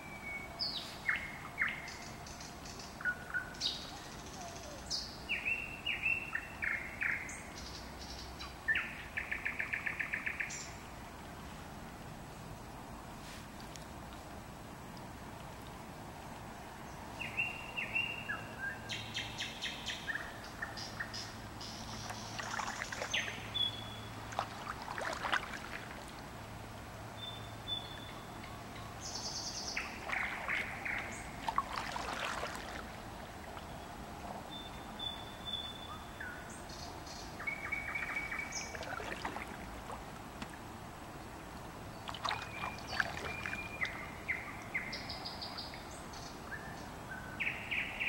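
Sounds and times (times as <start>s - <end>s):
songbirds singing: 0.0s - 11.6s, 16.4s - 48.0s
paddle splashes and drips: 21.6s - 35.2s, 37.6s - 44.8s.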